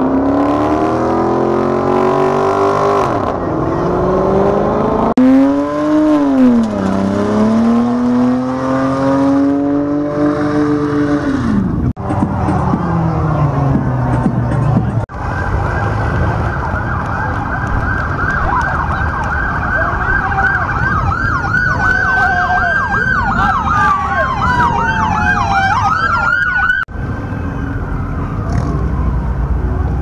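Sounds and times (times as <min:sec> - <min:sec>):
police sirens yelping and wailing: 0:12.0 - 0:30.0.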